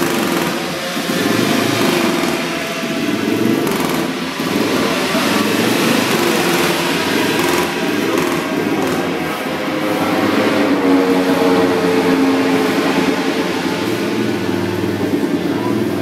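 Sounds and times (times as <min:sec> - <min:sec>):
racing motorcycle engines: 0:00.0 - 0:16.0.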